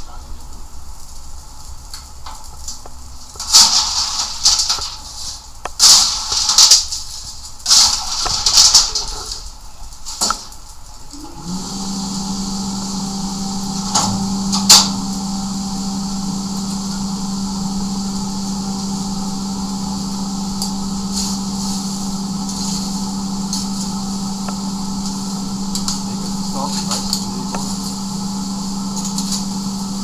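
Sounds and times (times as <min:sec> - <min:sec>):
metal clanks of rake on forge: 0:03.3 - 0:09.5
electric blower humming: 0:11.1 - 0:30.0.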